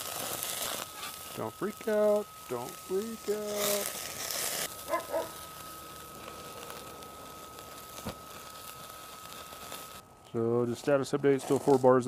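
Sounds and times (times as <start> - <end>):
burgers sizzling on grill: 0.0 - 12.0
fan whine: 0.0 - 12.0
wood stove hissing and crackling: 0.0 - 12.0.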